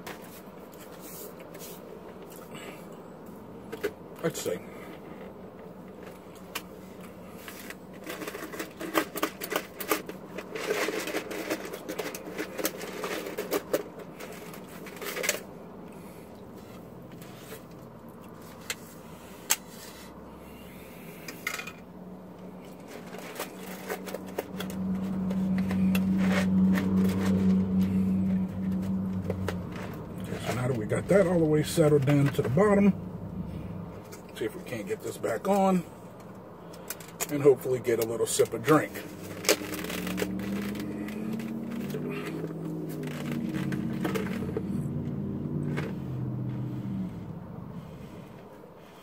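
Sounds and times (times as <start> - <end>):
steady low hum: 14.1 - 37.1.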